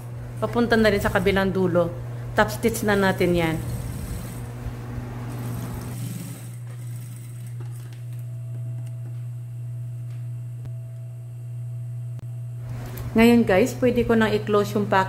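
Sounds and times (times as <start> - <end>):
sewing machine motor hum: 2.2 - 10.5.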